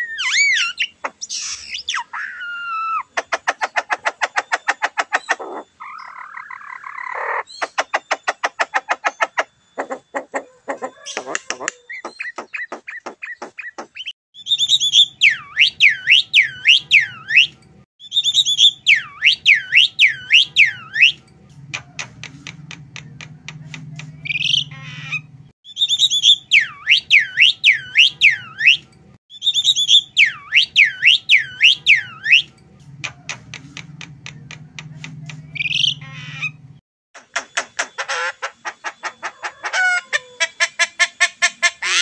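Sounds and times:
bird singing whistled phrases: 0:14.4 - 0:21.2, 0:24.2 - 0:32.5
bird clicking: 0:20.1 - 0:24.6, 0:31.8 - 0:35.9.

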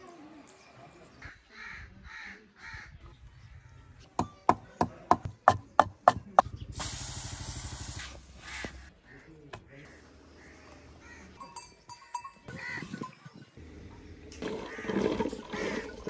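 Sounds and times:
pestle pounding in clay mortar: 0:04.2 - 0:06.5
flatbread steaming hiss: 0:06.8 - 0:08.6.

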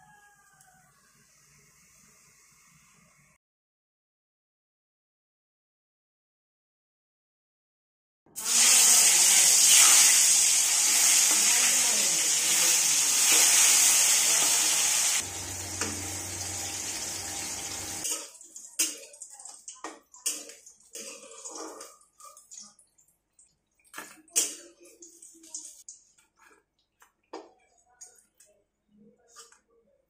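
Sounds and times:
eggplant sizzling in hot oil: 0:08.4 - 0:21.6
spatula scraping a pan: 0:08.6 - 0:15.2, 0:20.2 - 0:22.5.

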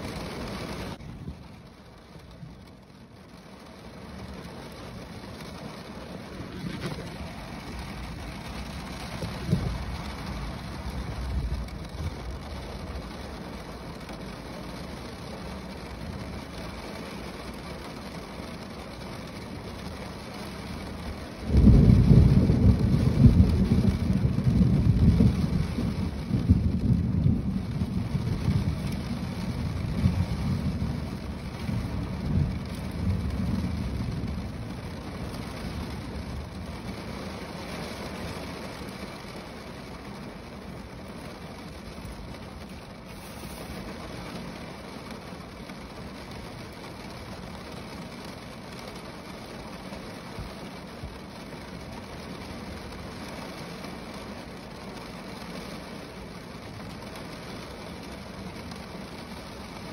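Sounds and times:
rain on a car roof: 0:00.0 - 0:59.9
thunder rumbling: 0:03.7 - 0:14.9, 0:20.5 - 0:48.1.

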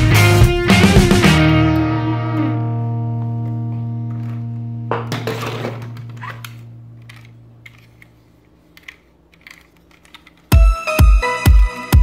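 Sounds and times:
distorted electric guitar chord: 0:00.0 - 0:07.0
plastic toy cars clattering: 0:05.0 - 0:10.5.

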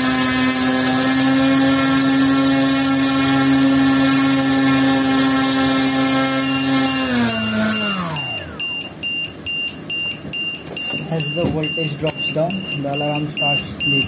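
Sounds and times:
electric motor spinning propeller: 0:00.0 - 0:08.6
high-pitched alarm beeping: 0:06.3 - 0:14.0.

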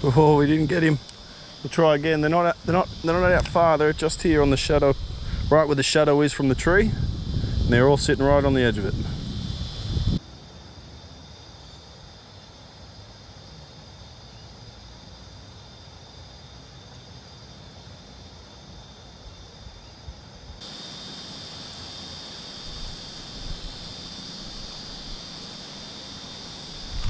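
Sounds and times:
insect drone: 0:00.0 - 0:27.0
wind rumble on microphone: 0:02.0 - 0:10.2, 0:26.8 - 0:27.0.

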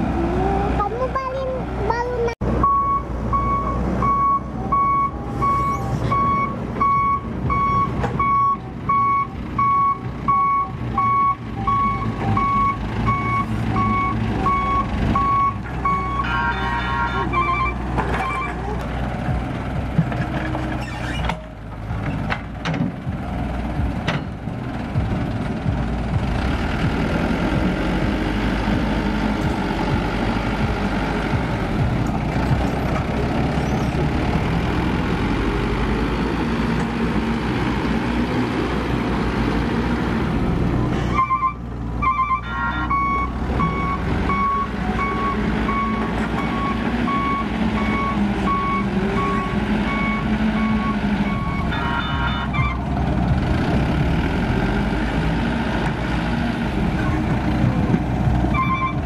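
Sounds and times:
diesel truck engine running: 0:00.0 - 0:59.0
reversing alarm beeping: 0:02.6 - 0:16.6, 0:17.2 - 0:18.6, 0:41.2 - 0:52.8, 0:58.6 - 0:59.0.

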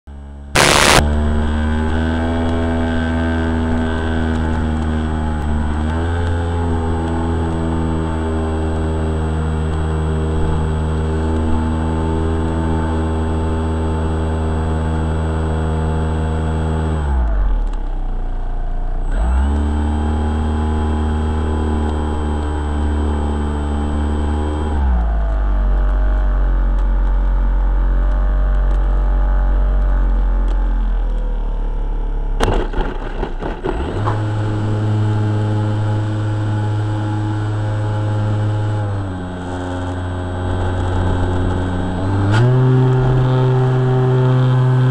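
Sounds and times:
electric motor and propeller whine: 0:00.3 - 0:44.9
crackling: 0:00.6 - 0:01.0, 0:32.4 - 0:34.5.

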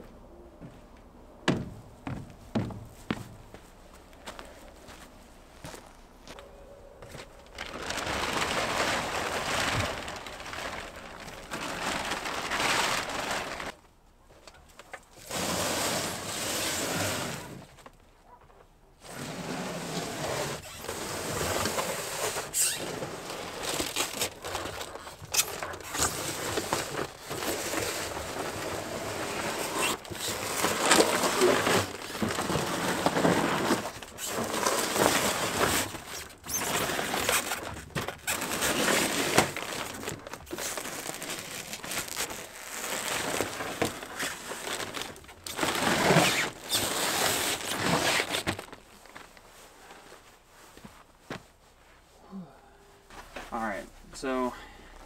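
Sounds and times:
refrigerator scraping on dirt: 0:07.0 - 0:13.8, 0:15.2 - 0:17.8, 0:19.0 - 0:49.4.

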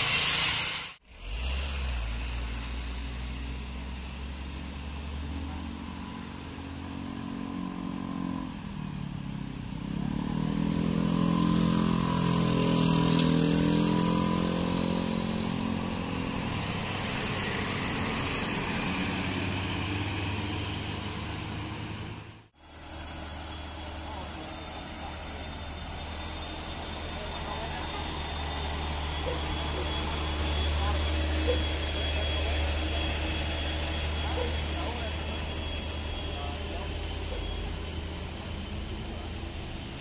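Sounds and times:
diesel bus engine: 0:00.0 - 0:40.0
passing traffic: 0:00.0 - 0:40.0.

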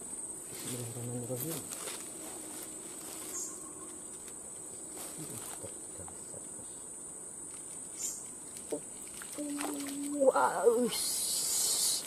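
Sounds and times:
insects calling high-pitched tone: 0:02.1 - 0:05.5, 0:06.6 - 0:12.0.

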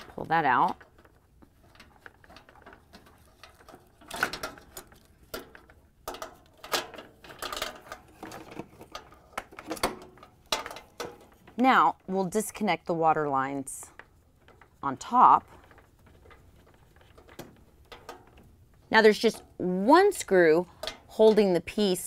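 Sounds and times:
plastic and metal parts clicking: 0:00.0 - 0:11.6, 0:15.4 - 0:19.5.

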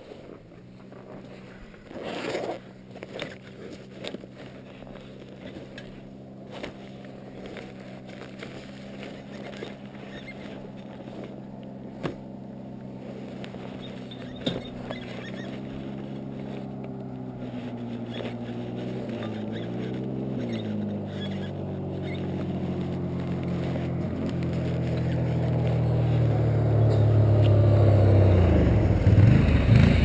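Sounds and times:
rustling scrape: 0:00.0 - 0:27.3
atv engine running: 0:00.0 - 0:30.0.

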